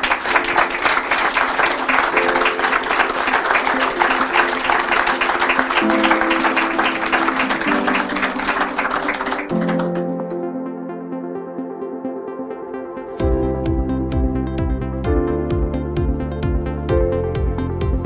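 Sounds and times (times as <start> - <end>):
audience applauding: 0.0 - 10.5
music with sustained chords: 0.0 - 18.0.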